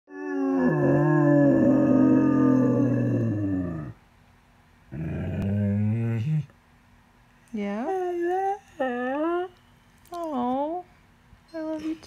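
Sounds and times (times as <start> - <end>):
dog howling: 0.1 - 4.0.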